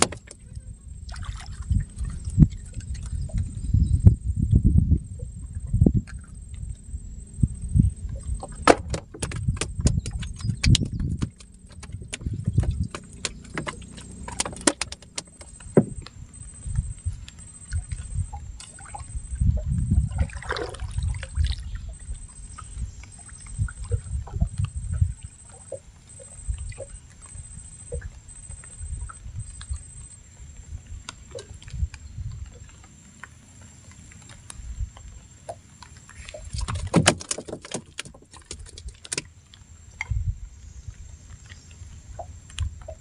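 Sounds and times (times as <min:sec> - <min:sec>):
water slapping against hull: 0:00.0 - 0:06.9, 0:07.5 - 0:43.0
knocks on canoe hull: 0:08.6 - 0:16.0
fishing tackle clicks and rattles: 0:08.6 - 0:16.1, 0:36.1 - 0:39.3.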